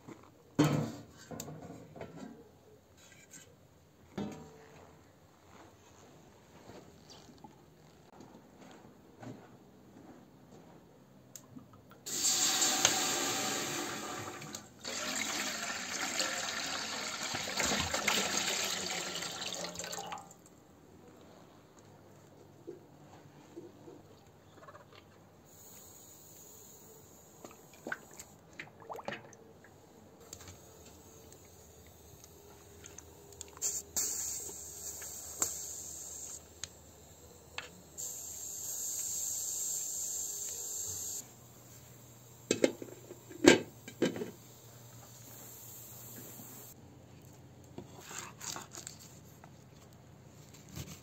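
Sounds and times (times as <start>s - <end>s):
hiss: 12.1s - 14.4s, 25.5s - 27.5s, 33.4s - 36.8s, 37.6s - 46.8s.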